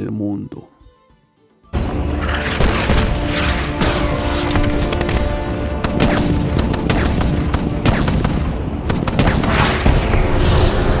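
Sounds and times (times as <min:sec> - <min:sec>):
background music: 0:00.0 - 0:11.0
gunfire bursts: 0:02.3 - 0:10.4.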